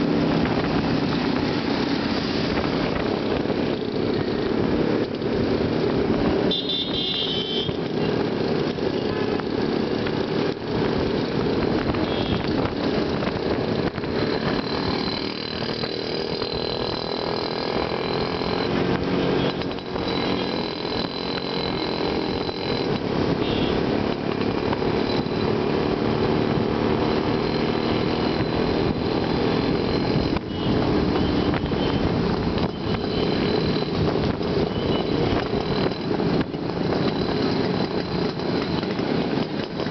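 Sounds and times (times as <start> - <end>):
road and wind noise: 0.0 - 39.9
two-stroke motorcycle engines: 0.0 - 39.9.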